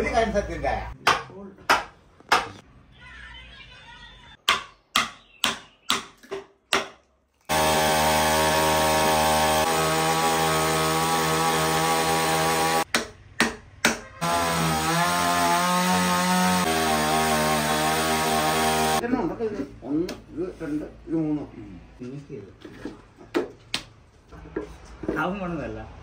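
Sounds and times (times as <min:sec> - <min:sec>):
chainsaw cutting wood: 0:07.5 - 0:12.9, 0:14.2 - 0:19.0.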